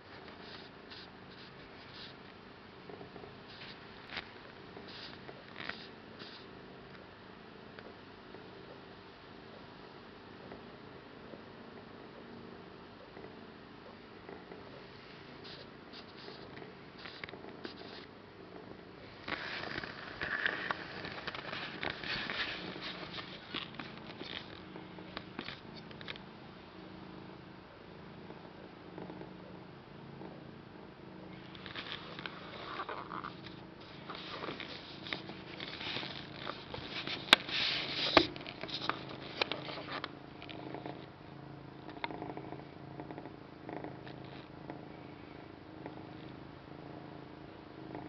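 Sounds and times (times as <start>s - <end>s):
rustling: 0.0s - 2.4s, 3.4s - 6.5s, 14.8s - 18.1s, 19.0s - 26.2s, 31.4s - 40.6s
kitten purring: 0.0s - 7.1s, 11.7s - 48.0s
kitten rustling on a towel: 19.2s - 24.5s.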